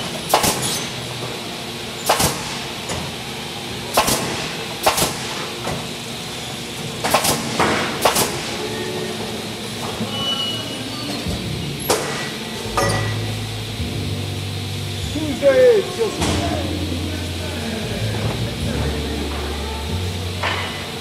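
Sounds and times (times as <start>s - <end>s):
machine humming: 0.0s - 21.0s
nail gun shots: 0.3s - 0.9s, 2.0s - 3.0s, 3.9s - 5.8s, 7.0s - 8.6s, 11.9s - 12.3s.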